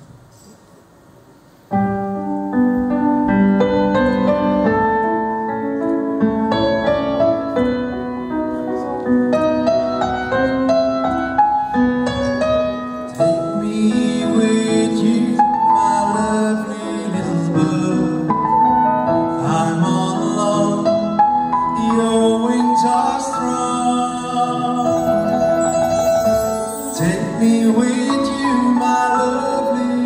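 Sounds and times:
slow gentle piano: 0.0 - 30.0
band playing: 21.8 - 30.0.

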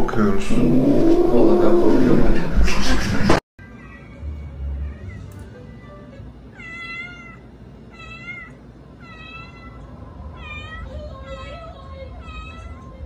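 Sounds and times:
cat meowing: 6.5 - 13.0.

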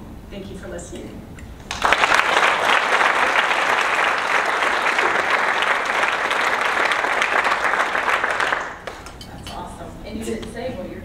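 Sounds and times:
audience clapping: 1.6 - 9.2.

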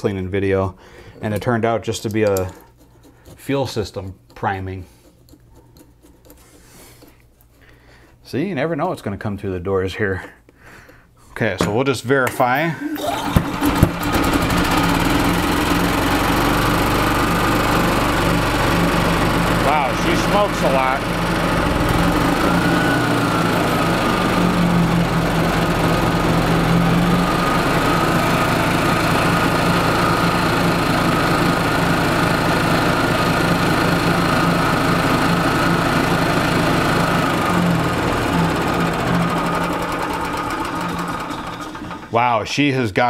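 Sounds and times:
knocking engine running: 13.2 - 42.1.

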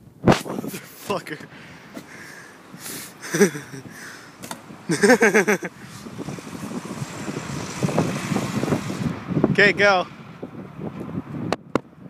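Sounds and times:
person laughing: 2.8 - 4.2, 4.9 - 5.9.

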